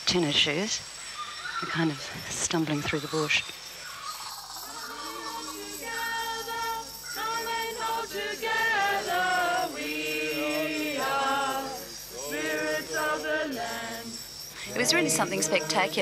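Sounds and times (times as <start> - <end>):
group singing unaccompanied: 4.6 - 16.0.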